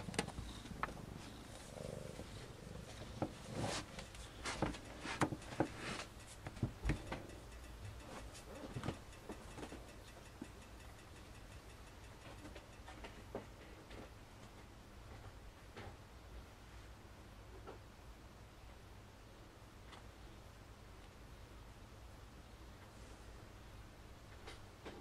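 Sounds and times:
kittens purring: 0.0 - 13.9
soft clicks and rustles: 0.0 - 16.0.

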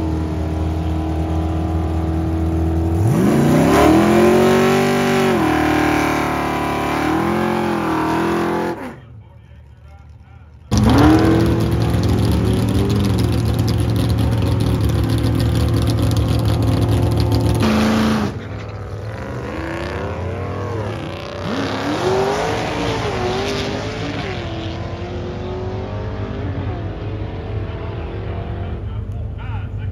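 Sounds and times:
drag car engine running: 0.0 - 22.8
drag cars accelerating away: 0.0 - 29.9.

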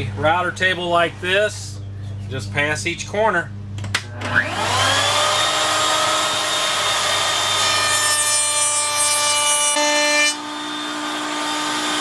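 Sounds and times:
router whining: 4.0 - 12.0
router bit cutting wood: 4.2 - 12.0.

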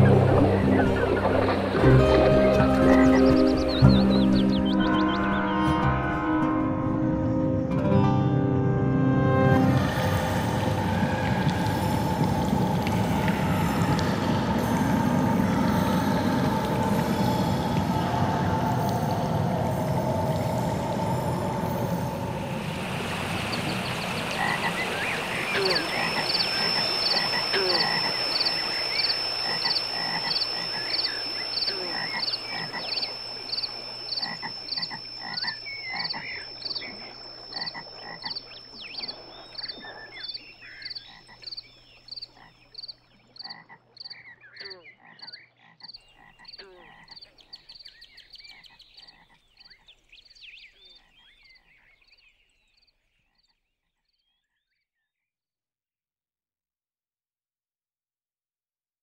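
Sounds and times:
frogs croaking and peeping: 0.0 - 5.6, 9.6 - 54.7
thin high tone: 13.4 - 39.9.

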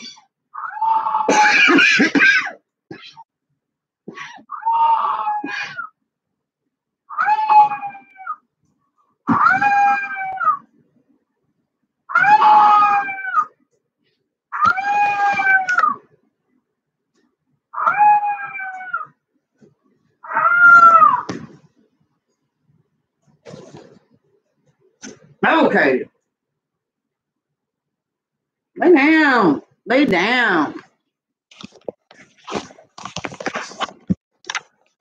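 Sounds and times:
puppy howling: 7.1 - 8.4, 17.8 - 19.1, 20.2 - 21.3.

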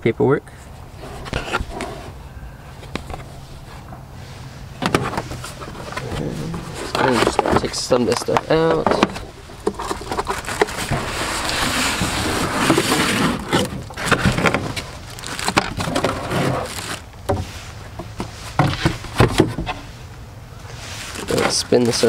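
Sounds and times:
packaging rustling and scraping: 9.2 - 17.0.

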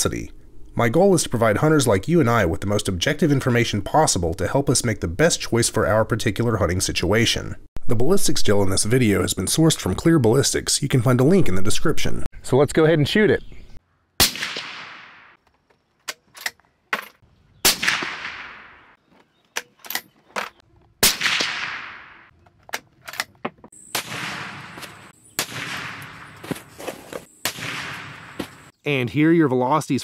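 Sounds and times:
suppressed rifle shots echoing: 14.2 - 15.4, 17.6 - 19.0, 21.0 - 22.3, 23.8 - 26.7, 27.4 - 28.7.

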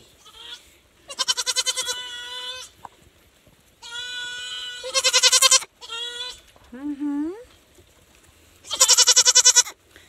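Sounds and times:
goat kid bleating: 0.2 - 2.8, 3.8 - 6.5, 8.6 - 9.8.

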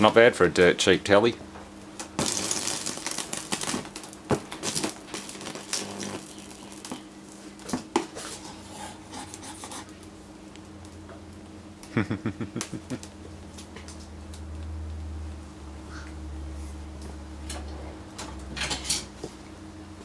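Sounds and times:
electric arc crackling and buzzing: 0.0 - 15.6
low transformer hum: 0.0 - 20.0.

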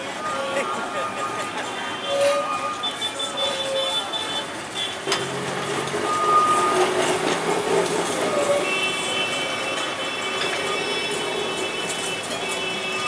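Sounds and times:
tram rumbling past: 4.4 - 13.0.

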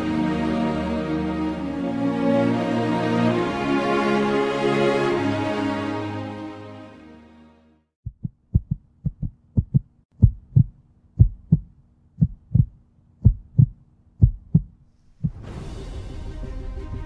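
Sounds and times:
music: 0.0 - 7.9, 15.3 - 17.0
heartbeat thumps: 8.0 - 15.5.

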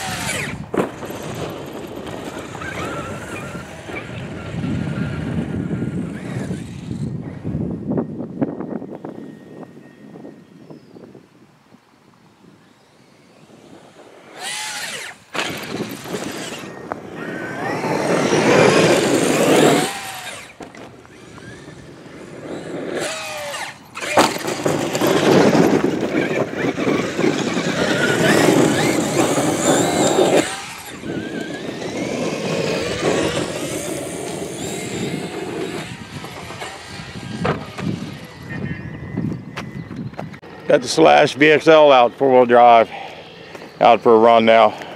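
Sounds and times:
electric toy truck motor whining: 0.0 - 7.7, 13.2 - 39.5.

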